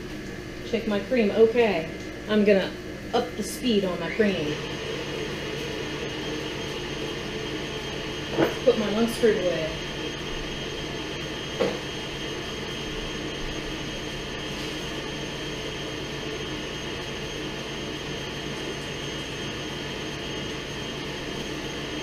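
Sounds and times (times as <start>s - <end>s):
range hood fan: 0.0s - 22.0s
stand mixer whirring: 0.0s - 22.0s.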